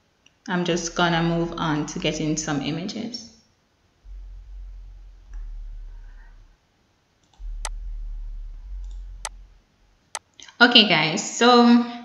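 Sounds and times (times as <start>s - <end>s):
low steady hum: 0.0s - 3.0s, 3.8s - 10.2s.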